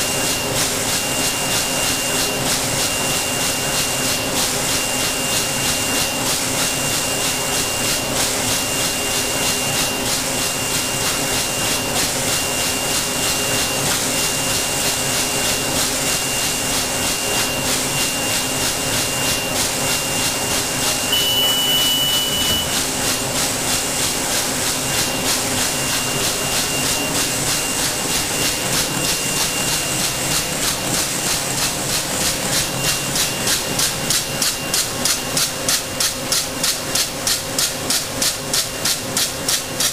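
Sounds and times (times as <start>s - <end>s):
machine hum and hiss: 0.0s - 39.9s
machine rhythmic clatter: 0.0s - 39.9s
high whistling tone: 21.1s - 22.8s.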